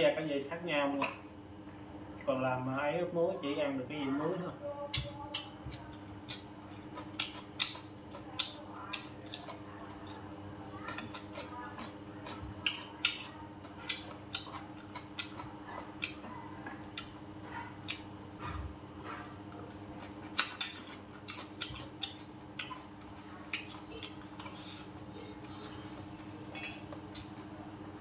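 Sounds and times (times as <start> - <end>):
faint steady hum: 0.0 - 28.0
chewing: 4.9 - 28.0
spoon and chopsticks clicking on dishes: 20.4 - 22.8.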